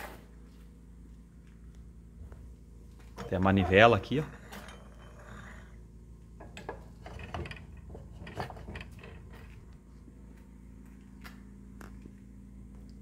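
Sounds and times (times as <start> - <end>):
hand-cranked grater gears clicking: 6.6 - 9.6.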